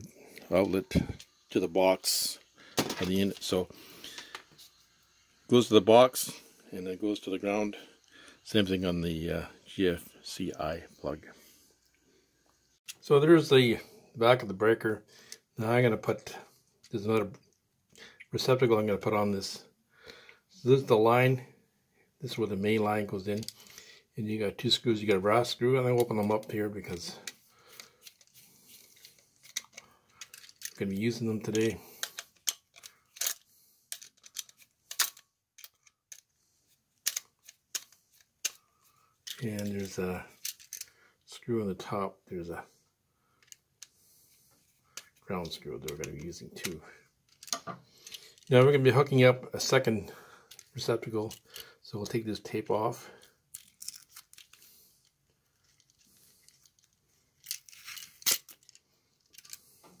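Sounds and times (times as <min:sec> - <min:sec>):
tape rustling: 0:25.9 - 0:40.9, 0:53.4 - 1:00.0.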